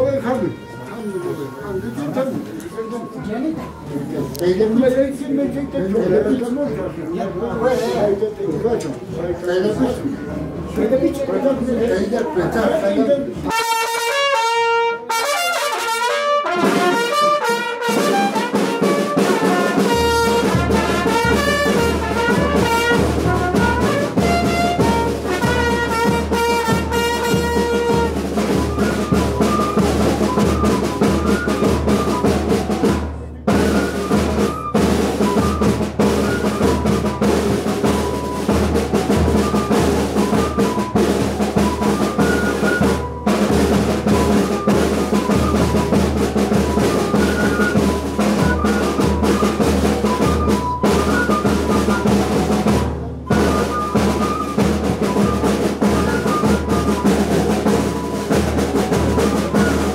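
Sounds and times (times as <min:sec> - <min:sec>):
trumpets playing melody: 0:00.0 - 0:02.0, 0:13.5 - 0:32.9
bass drum and snare beat: 0:13.5 - 0:59.9.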